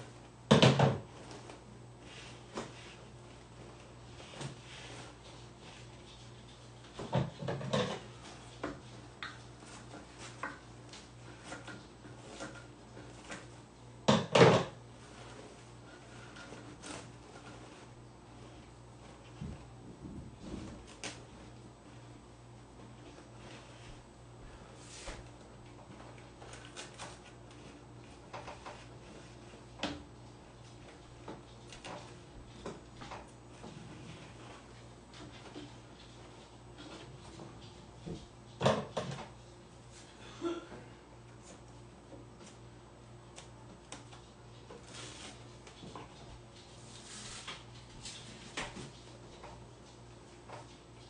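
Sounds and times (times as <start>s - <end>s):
low steady hum: 0.0s - 51.0s
clicks and rustles of paper: 26.1s - 27.6s.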